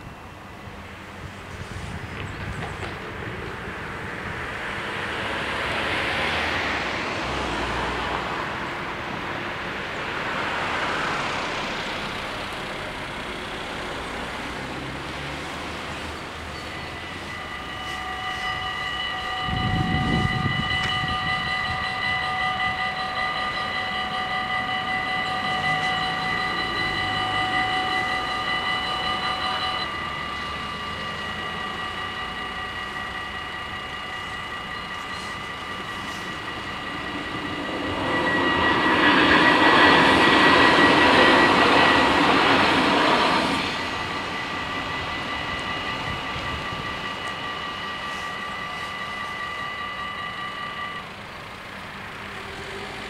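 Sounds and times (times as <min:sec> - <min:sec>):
road traffic passing: 0:00.0 - 0:53.0
electronic warning bells ringing: 0:03.0 - 0:53.0.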